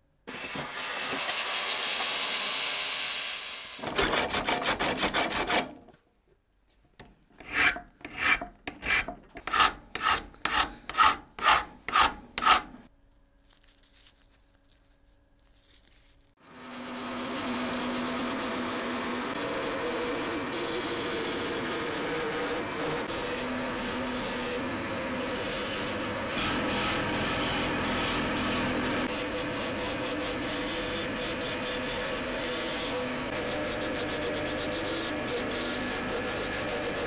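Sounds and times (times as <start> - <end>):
abrasive sanding scratchy strokes: 7.4 - 12.8, 25.2 - 37.0
power tool running: 16.4 - 37.0.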